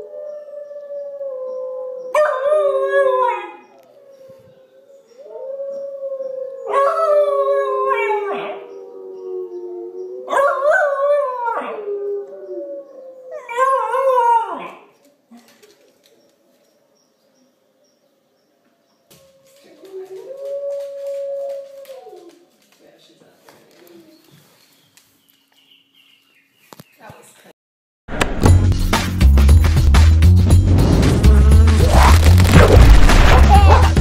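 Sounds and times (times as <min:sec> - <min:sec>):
recorded wolf howls: 0:00.0 - 0:14.8, 0:31.9 - 0:34.0.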